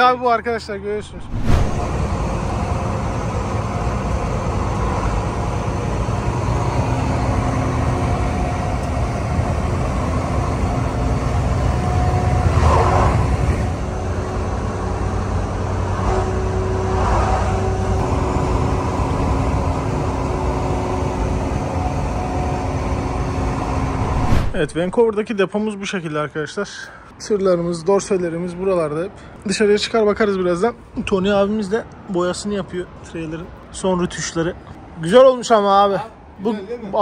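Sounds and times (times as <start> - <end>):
road noise: 0.6 - 25.1, 28.4 - 37.0
vehicle engine rumble: 0.9 - 12.4, 17.6 - 25.0.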